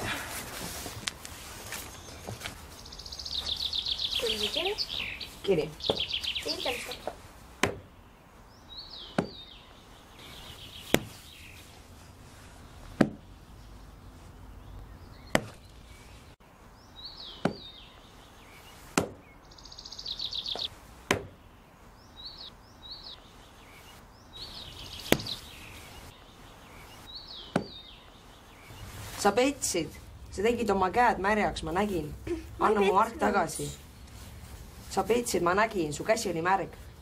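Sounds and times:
birds chirping: 0.0 - 37.0
bird trill: 2.8 - 7.1, 16.8 - 20.7.

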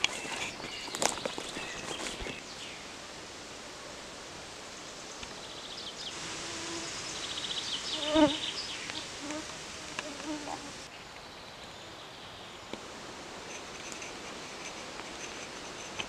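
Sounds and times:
steady hiss: 0.0 - 16.0
flying insect buzzing: 6.2 - 10.9.

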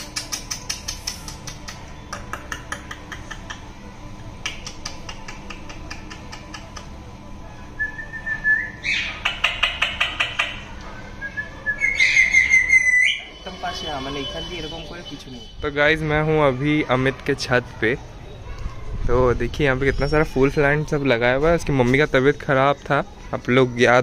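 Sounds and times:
parakeet clicks and chirps: 0.0 - 3.7, 4.4 - 7.0, 8.8 - 10.7
parakeet squawky calls: 8.7 - 10.7, 11.7 - 15.6
parakeet whistled note: 11.2 - 15.7.

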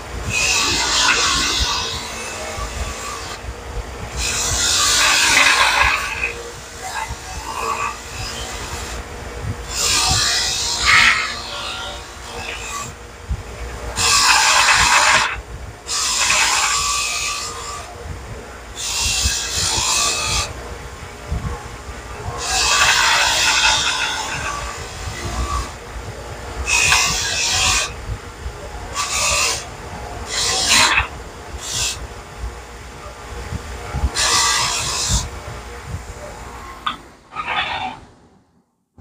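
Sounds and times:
wire wheel scraping steel parts: 4.1 - 9.0, 9.6 - 13.0, 13.9 - 17.9, 22.2 - 25.8, 28.9 - 32.0.

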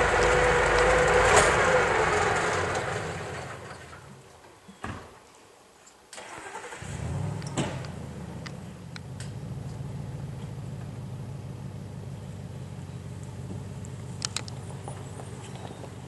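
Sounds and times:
engine idling: 0.0 - 4.2, 6.4 - 16.0
sharp clicks: 13.2 - 14.6.

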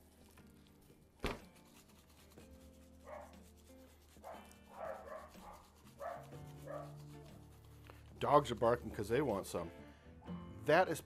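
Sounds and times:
meat thumping on cutting board: 1.2 - 1.5
dogs barking: 3.0 - 3.4, 4.2 - 7.0.

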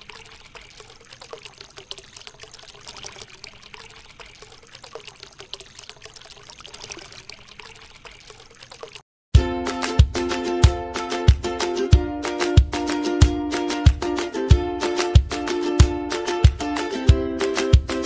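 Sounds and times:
small droplet splashes: 0.0 - 9.0
water trickling into fountain basin: 0.0 - 9.0.

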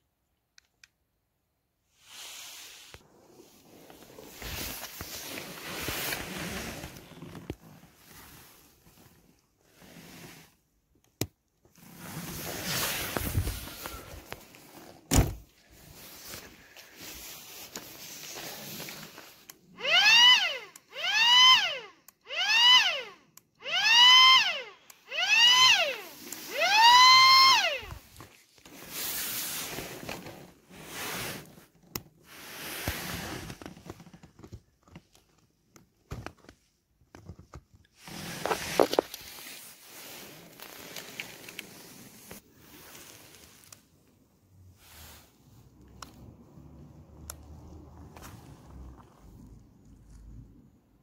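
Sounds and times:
handling noise and shuffling: 1.9 - 11.0, 11.6 - 19.7, 25.9 - 46.4, 47.5 - 50.3
car door shutting: 15.1 - 15.5.

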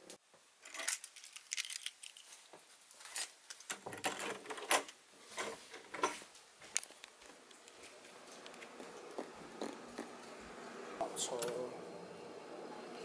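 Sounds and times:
keys jangling and clinking: 0.6 - 2.3.

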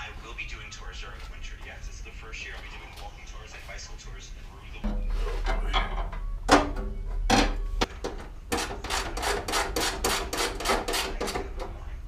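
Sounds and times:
metal heater knocking on bracket: 4.8 - 8.8.

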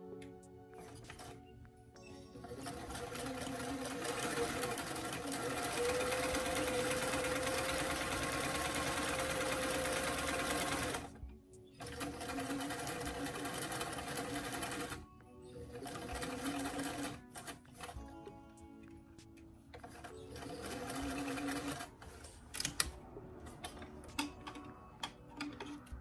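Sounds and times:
sewing machine running: 2.4 - 11.1, 11.8 - 15.0, 15.7 - 17.9, 19.8 - 22.8.

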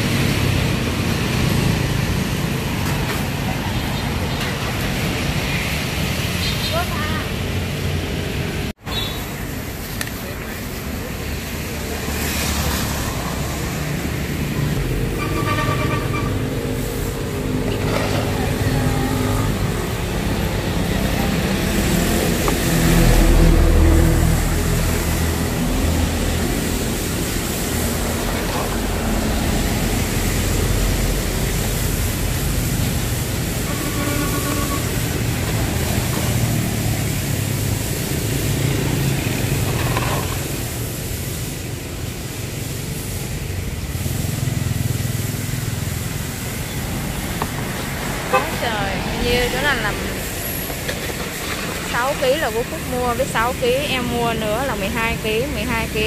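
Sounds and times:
street traffic rumble: 0.0 - 56.0
loud vehicle passing: 10.9 - 41.1, 42.6 - 56.0.

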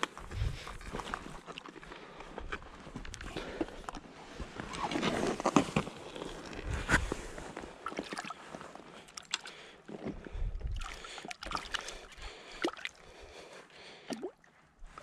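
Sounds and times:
river water sloshing and splashing: 7.8 - 9.5.

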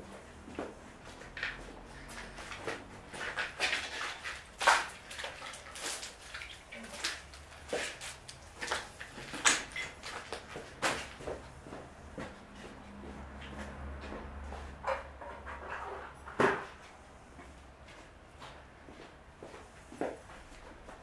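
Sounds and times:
footsteps and scuffs: 0.1 - 15.1, 16.7 - 21.0.

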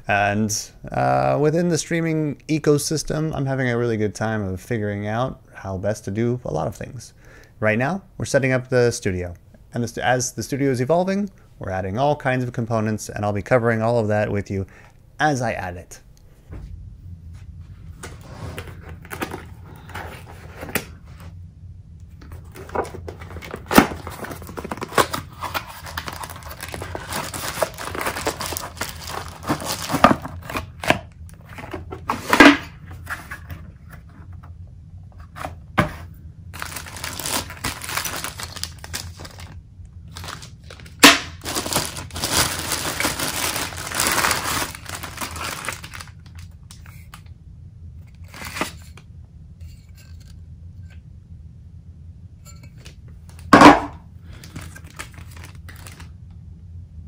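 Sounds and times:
plastic bag crinkling: 22.4 - 30.9, 36.6 - 47.2, 54.3 - 56.1.

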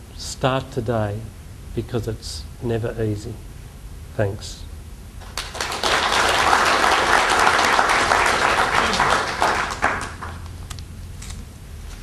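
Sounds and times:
audience applauding: 5.2 - 10.5.

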